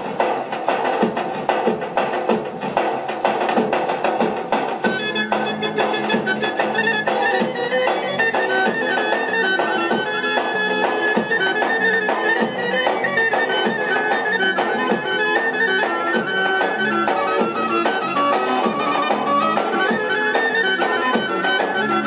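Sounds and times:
steady drum beat: 0:00.0 - 0:22.0
wind instrument melody: 0:04.8 - 0:22.0.

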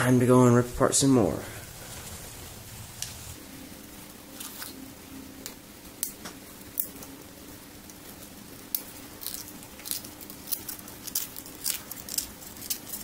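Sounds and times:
faint steady hum: 0:00.0 - 0:13.0
thin metal crackling and ripping: 0:07.8 - 0:13.0.

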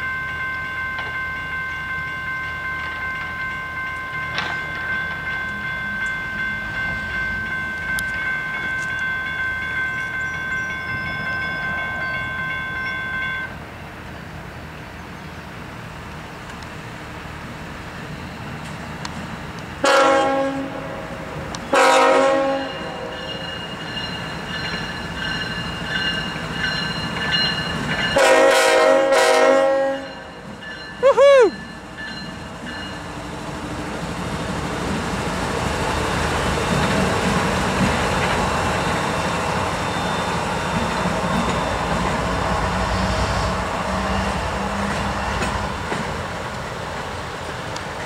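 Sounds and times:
high ringing tone: 0:00.0 - 0:13.6, 0:22.5 - 0:28.4, 0:29.9 - 0:33.2, 0:38.5 - 0:45.7
diesel locomotive rumbling past: 0:00.0 - 0:48.0
locomotive air horn blasts: 0:19.8 - 0:23.1, 0:28.2 - 0:30.2.

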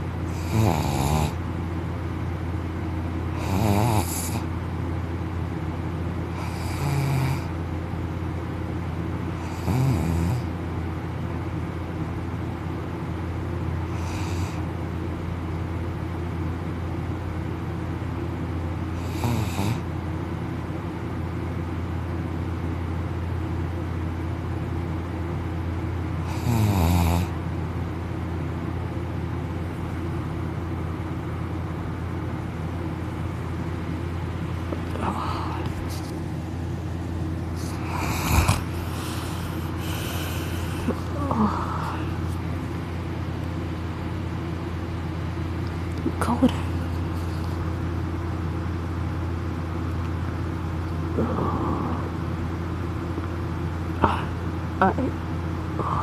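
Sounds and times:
steady low hum: 0:00.0 - 0:56.0
man snoring: 0:00.3 - 0:01.4, 0:03.3 - 0:04.5, 0:06.3 - 0:07.6, 0:09.4 - 0:10.5, 0:19.0 - 0:19.9, 0:26.3 - 0:27.4, 0:37.7 - 0:42.2, 0:51.1 - 0:52.4.

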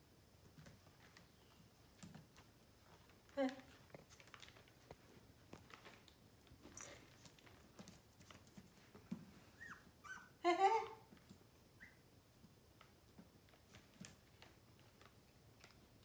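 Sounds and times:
puppy whining: 0:09.4 - 0:11.0, 0:11.8 - 0:12.0
puppy yip: 0:09.6 - 0:10.8.

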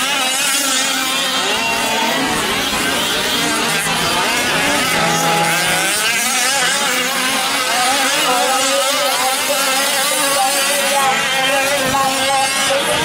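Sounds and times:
small two-stroke engines buzzing: 0:00.0 - 0:13.0.

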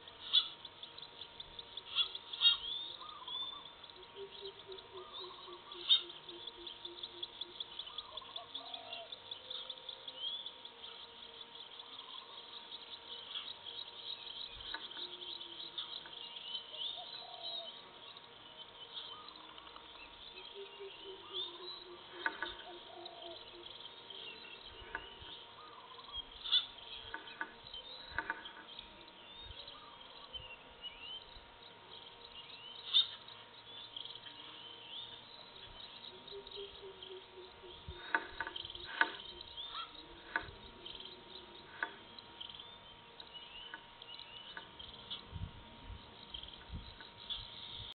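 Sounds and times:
low wavering bird call: 0:00.0 - 0:00.6, 0:01.8 - 0:10.4, 0:19.0 - 0:26.8, 0:36.0 - 0:42.9
faint steady electronic tone: 0:00.0 - 0:47.9
insects chirping: 0:00.0 - 0:47.9.

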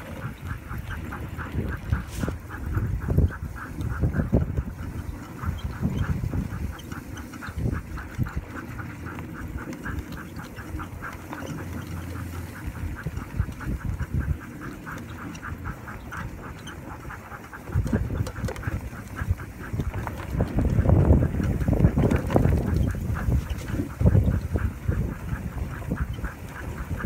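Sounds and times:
cart rolling over packed snow: 0:00.0 - 0:27.0
rhythmic squeak: 0:02.3 - 0:08.4.

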